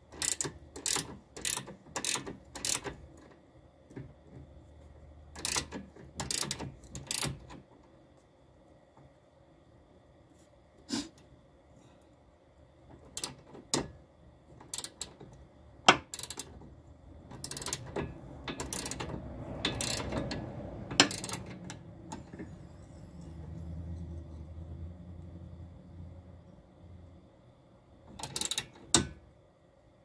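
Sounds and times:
low steady hum: 0.0 - 30.0
ratcheting wrench clicking: 0.1 - 4.1, 5.3 - 7.7, 13.0 - 14.0, 14.6 - 22.5, 28.1 - 29.2.

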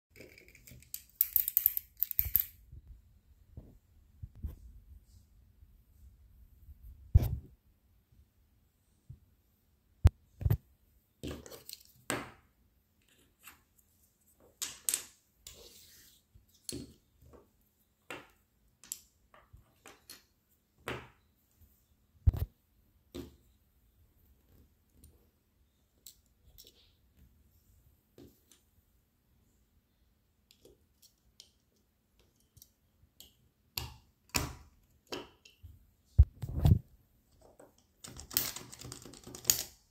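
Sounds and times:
plastic bricks clicking on wooden table: 0.2 - 2.6, 37.4 - 39.8.

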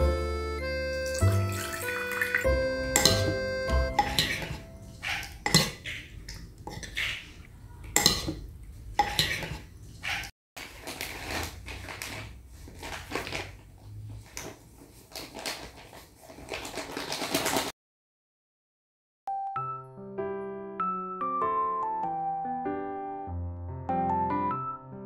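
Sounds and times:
spoon stirring and scraping in bowl: 2.3 - 10.3
spoon clinking against bowl: 3.0 - 5.8, 8.0 - 8.4
plastic packet rustling: 10.6 - 17.7.

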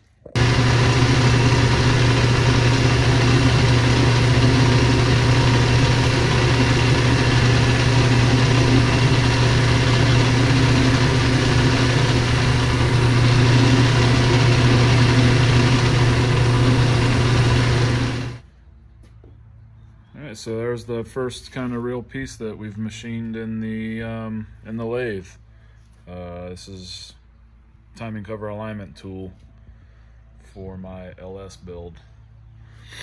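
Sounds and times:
metal lathe humming: 0.4 - 18.4.

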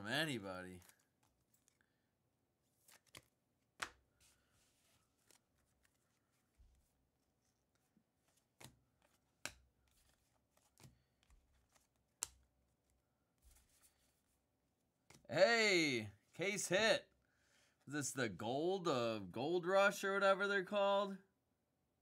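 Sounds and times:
cards flicking against stack: 2.8 - 4.3, 5.1 - 6.8, 8.2 - 12.5.

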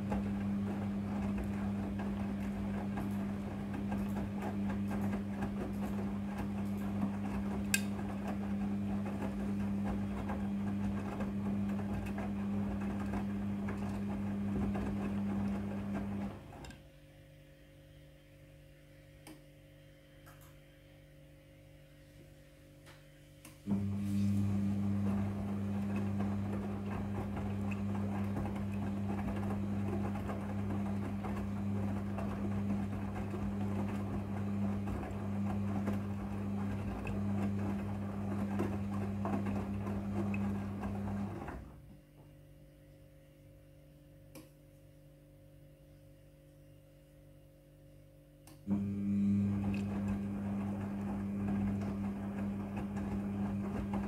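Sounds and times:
wet laundry tumbling in drum: 0.0 - 16.7, 23.7 - 42.0, 48.8 - 54.0
washing machine motor hum: 0.0 - 54.0.

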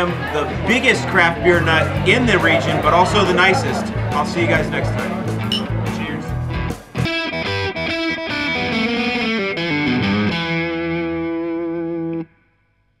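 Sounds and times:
distorted electric guitar: 5.4 - 12.3.

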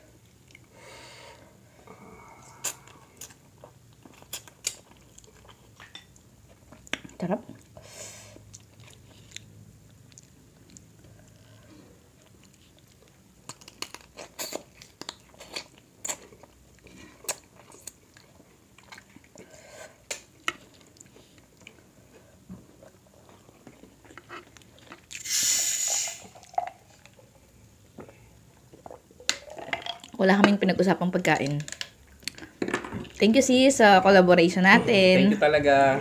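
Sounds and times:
chewing: 2.5 - 7.8, 8.4 - 25.2.

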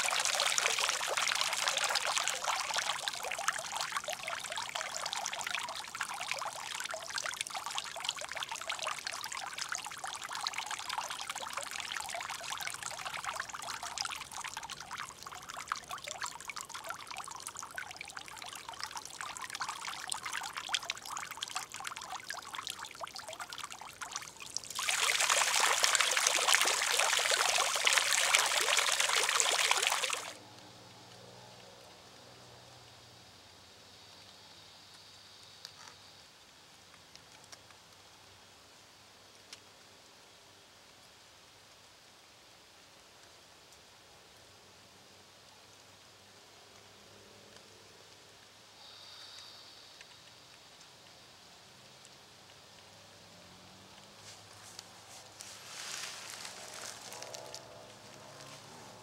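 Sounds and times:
fountain jets splashing into water: 0.0 - 30.4, 51.9 - 59.0.

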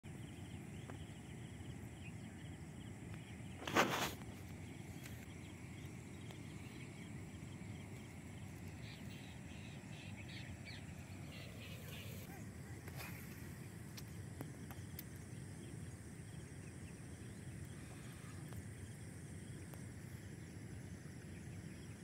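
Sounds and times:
insect chirps and ticking: 0.0 - 22.0
steady low rumble: 0.1 - 22.0
bird chirps: 4.6 - 13.7.

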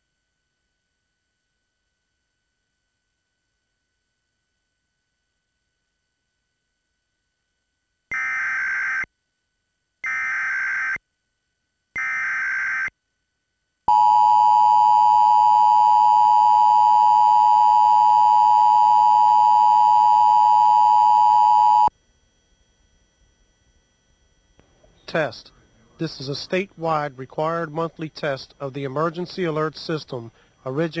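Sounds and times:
two-tone attention signal: 13.9 - 21.9.

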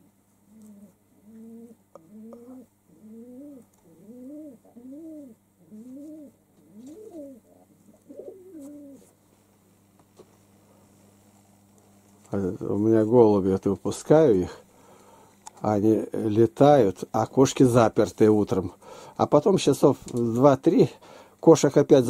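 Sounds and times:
pigeon cooing: 0.5 - 9.2.

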